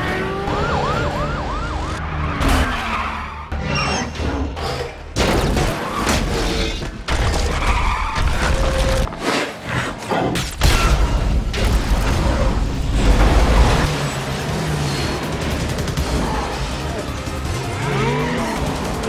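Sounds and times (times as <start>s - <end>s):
vehicle noise: 0.0s - 5.2s, 11.5s - 19.0s
action film music: 0.0s - 19.0s.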